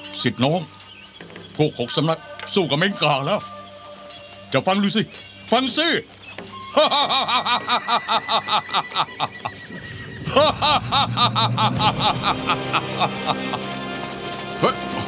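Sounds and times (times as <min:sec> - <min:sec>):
man laughing loudly: 0:06.7 - 0:13.8.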